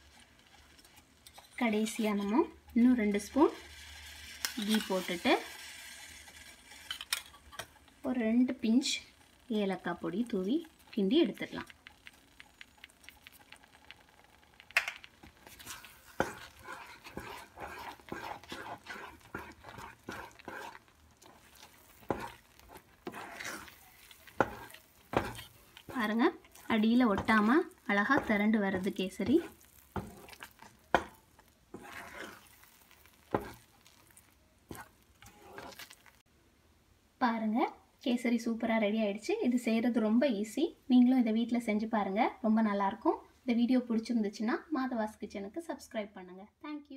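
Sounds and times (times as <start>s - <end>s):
wooden spatula stirring thick food: 0.0s - 36.3s
light sizzle: 0.0s - 46.9s
spatula knocking pan: 14.7s - 33.7s.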